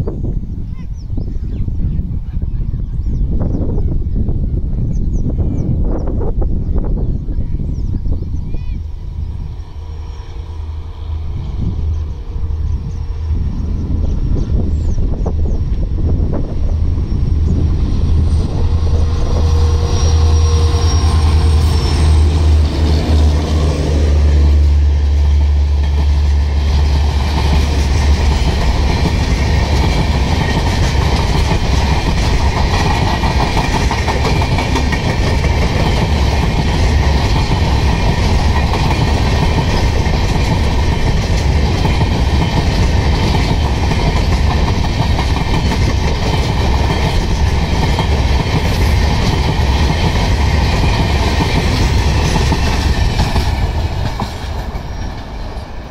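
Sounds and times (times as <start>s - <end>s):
rushing rail noise: 0.0s - 55.9s
locomotive engine rumble: 1.7s - 55.9s
wheels clacking over rail joints: 25.0s - 55.9s.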